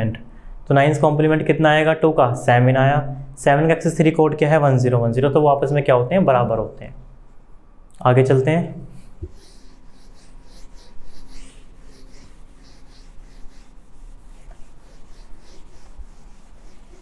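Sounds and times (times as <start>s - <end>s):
duster rubbing a whiteboard: 8.9s - 17.0s.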